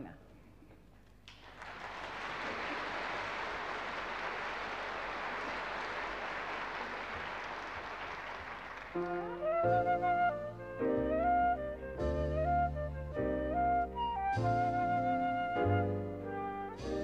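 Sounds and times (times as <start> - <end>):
audience applauding: 1.2 - 9.5.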